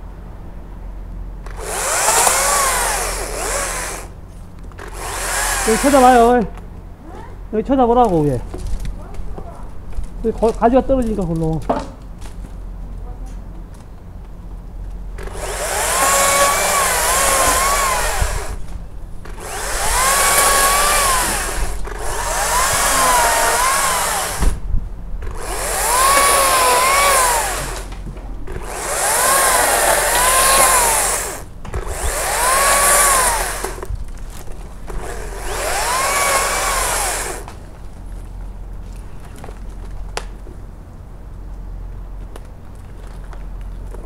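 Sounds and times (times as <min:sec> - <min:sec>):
battery chainsaw whining: 0:01.5 - 0:04.2, 0:04.8 - 0:06.4, 0:15.2 - 0:24.6, 0:25.2 - 0:27.9, 0:28.5 - 0:33.9, 0:34.8 - 0:37.5.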